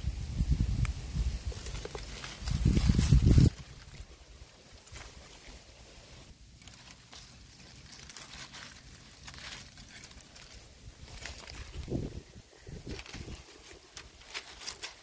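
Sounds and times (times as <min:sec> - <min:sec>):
dry leaves rustling and crackling: 0:00.6 - 0:15.0.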